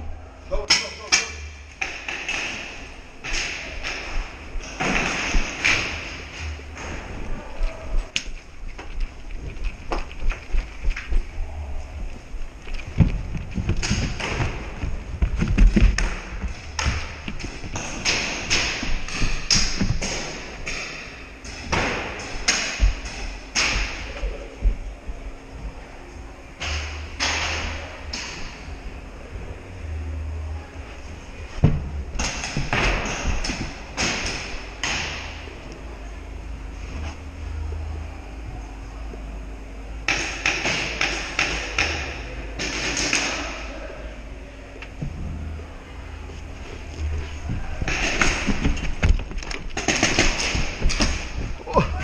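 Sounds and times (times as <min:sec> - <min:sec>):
background hum: 0:00.0 - 0:52.0
footsteps thudding: 0:03.3 - 0:25.3, 0:31.0 - 0:35.4, 0:46.4 - 0:52.0
paintballs smacking walls: 0:12.6 - 0:24.3.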